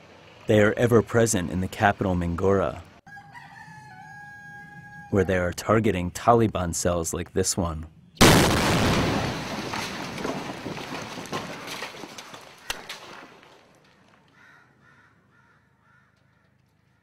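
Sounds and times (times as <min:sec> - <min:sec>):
loud blast rumbling: 0:08.2 - 0:10.2
sharp cracks: 0:08.2 - 0:14.4
faint bird calls: 0:14.3 - 0:17.0.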